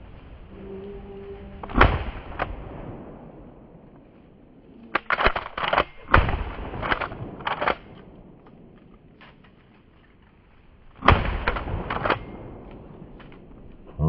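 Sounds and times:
shotgun shot: 1.7 - 3.2, 5.2 - 8.0, 11.0 - 12.6
shotgun pump racking clacks: 5.0 - 6.1.

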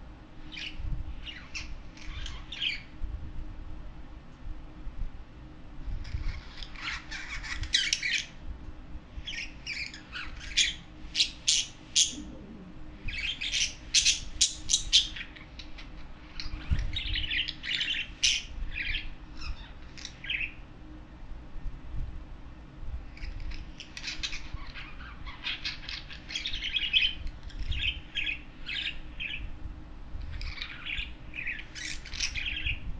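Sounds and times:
budgerigars chattering: 13.1 - 15.4.

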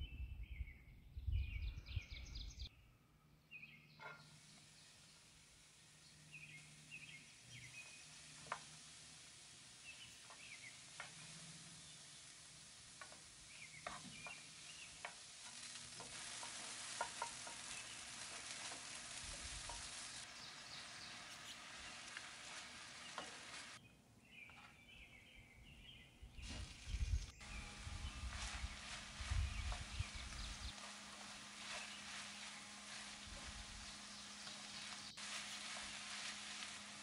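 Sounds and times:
onions sizzling in oil: 4.3 - 23.8, 27.4 - 37.0
wooden spoon scraping a pan: 5.7 - 23.8, 27.5 - 37.0.

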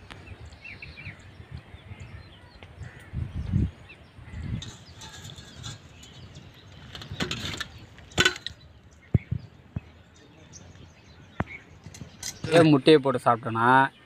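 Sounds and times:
wind on microphone: 0.0 - 10.0
faint birdsong: 0.0 - 14.0.

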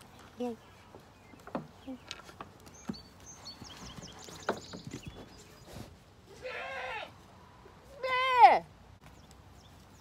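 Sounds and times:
faint knocks and rustles: 0.2 - 6.0
goat bleating: 6.3 - 7.2.

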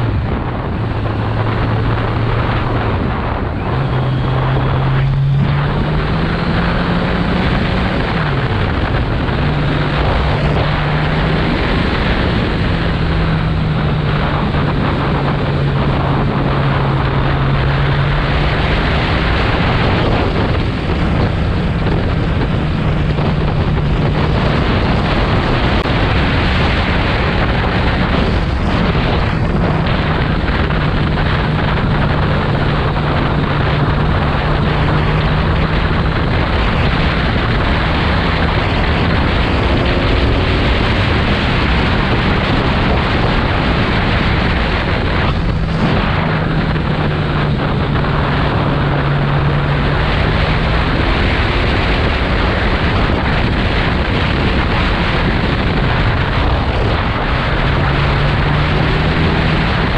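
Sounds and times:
motorcycle engine: 0.0 - 59.9
wind noise on microphone: 0.0 - 59.9.

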